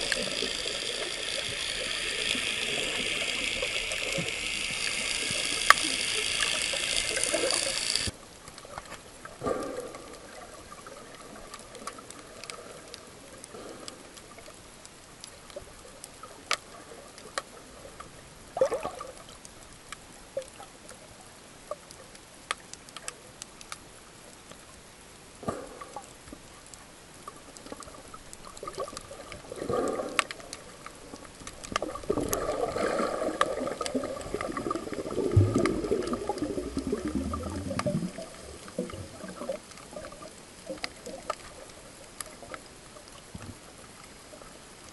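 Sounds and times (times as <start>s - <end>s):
underwater hiss: 0.0s - 8.2s, 9.4s - 10.5s, 25.4s - 26.2s, 28.7s - 41.6s
swishes of water and bubbles: 0.0s - 23.8s, 24.5s - 44.9s
faint clicks underwater: 0.0s - 24.8s, 25.4s - 44.9s.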